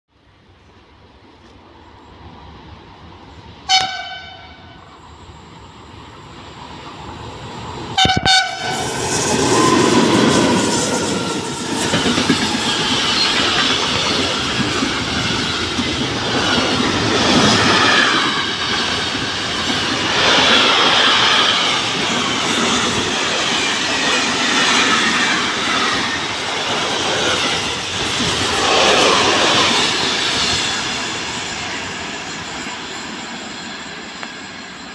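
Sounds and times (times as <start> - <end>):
train horn blast: 3.7 - 4.8, 8.0 - 8.8
train wheels clattering over rails: 8.1 - 34.9.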